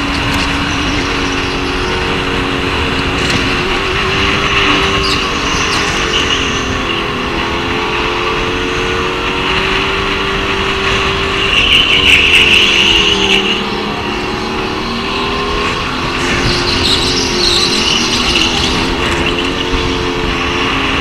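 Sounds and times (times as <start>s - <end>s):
go-kart engine revving: 0.0s - 21.0s.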